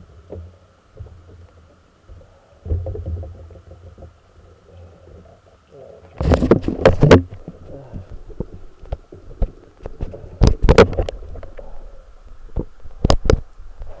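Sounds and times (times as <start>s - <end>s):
faint steady hum: 0.0s - 14.0s
camera housing knocks underwater: 6.2s - 7.4s.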